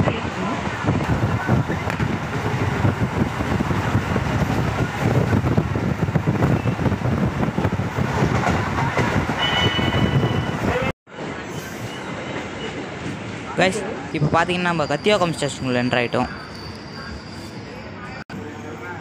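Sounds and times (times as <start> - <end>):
train wheels rumbling on rails: 0.0 - 14.1
high squeal: 11.4 - 12.4, 14.7 - 18.2.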